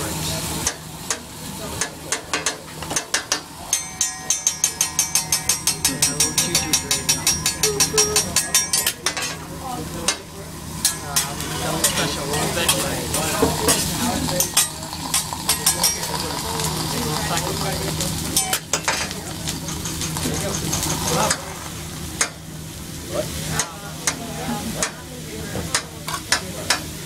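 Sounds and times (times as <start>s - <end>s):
food sizzling: 0.0s - 27.0s
metal spatulas clacking on griddle: 1.8s - 9.4s, 10.1s - 12.1s, 14.4s - 16.0s, 18.4s - 21.4s, 25.7s - 26.9s
spatula scraping and clinks: 3.7s - 9.4s, 13.7s - 16.2s.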